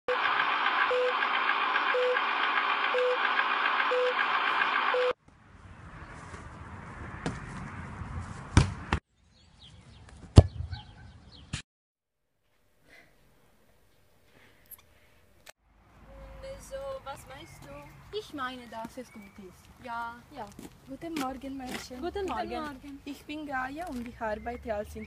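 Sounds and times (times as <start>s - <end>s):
short beeps: 2.9s - 3.2s, 3.9s - 4.2s.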